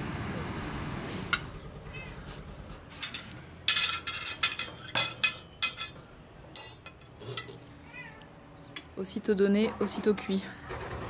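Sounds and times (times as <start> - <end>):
cutlery and dishes clinking: 3.0 - 7.6.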